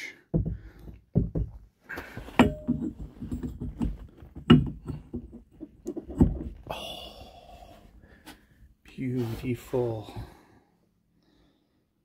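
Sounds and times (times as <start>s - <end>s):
metal parts knocking and clunking: 0.4s - 6.6s.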